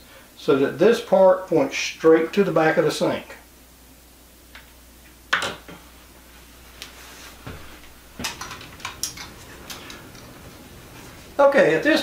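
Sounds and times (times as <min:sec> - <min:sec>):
plumbing parts clicking and rattling: 0:08.2 - 0:10.3.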